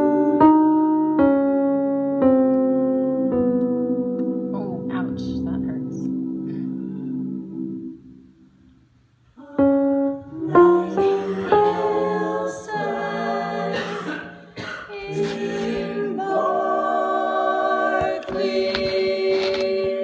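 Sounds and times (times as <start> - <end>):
unaccompanied voices singing: 9.4 - 20.0.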